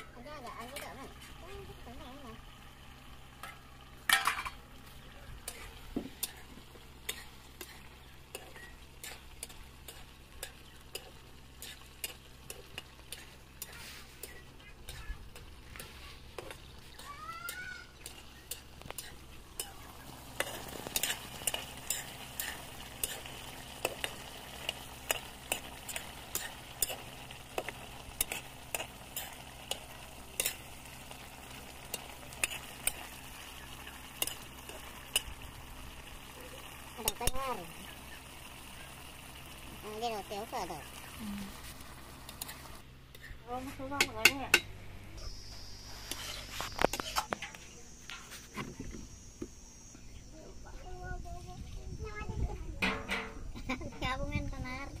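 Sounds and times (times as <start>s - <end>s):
curry sizzling: 0.0s - 52.3s
metal spoon scraping pan: 5.5s - 15.1s, 18.0s - 30.7s, 31.9s - 33.1s
loud metal clank: 52.8s - 53.4s.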